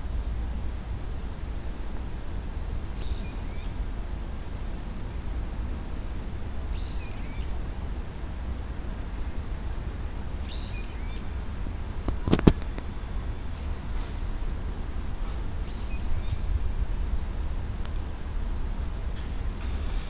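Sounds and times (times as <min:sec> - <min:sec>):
low rumble of city noise: 0:00.0 - 0:20.0
bird chirping: 0:03.0 - 0:03.8, 0:06.7 - 0:07.6, 0:10.4 - 0:11.4, 0:15.0 - 0:16.6.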